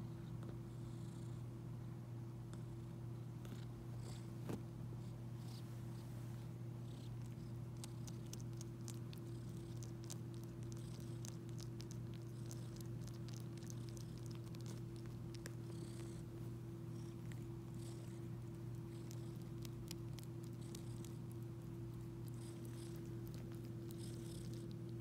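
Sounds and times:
cat purring: 0:05.0 - 0:25.0.

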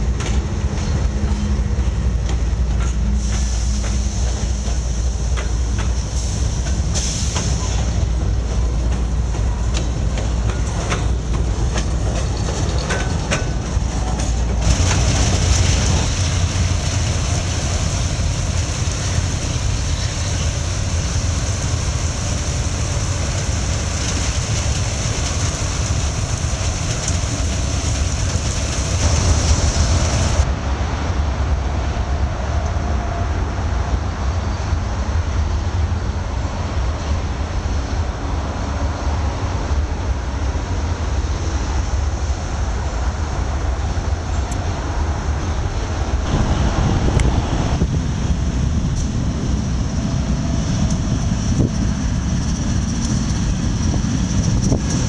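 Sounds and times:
wheels clicking over rail joints: 0:00.0 - 0:21.0
diesel locomotives rumbling: 0:00.0 - 0:55.0
freight train rumbling past: 0:00.0 - 0:55.0.

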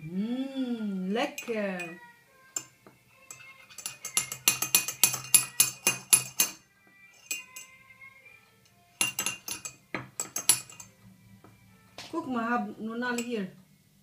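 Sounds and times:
teaspoon clinking in ceramic mug: 0:02.6 - 0:07.8, 0:08.6 - 0:11.0.

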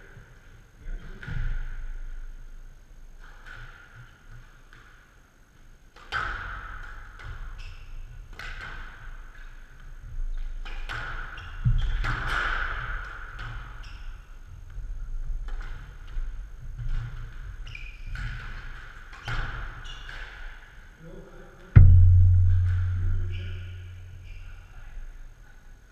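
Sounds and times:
squash ball knocks: 0:21.8 - 0:24.4.

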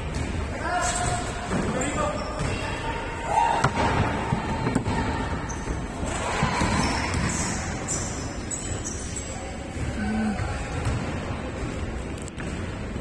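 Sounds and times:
basketball bouncing on court: 0:06.4 - 0:07.8, 0:09.7 - 0:11.2.

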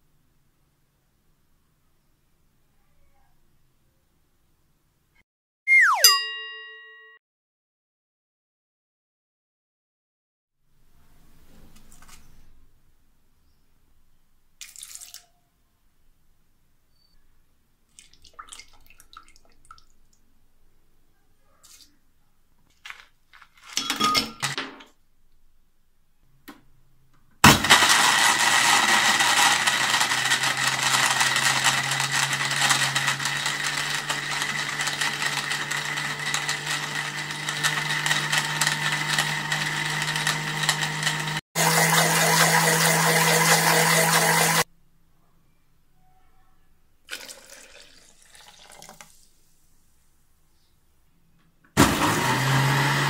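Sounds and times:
blender crushing ice: 0:27.4 - 0:44.7, 0:51.8 - 0:53.0.

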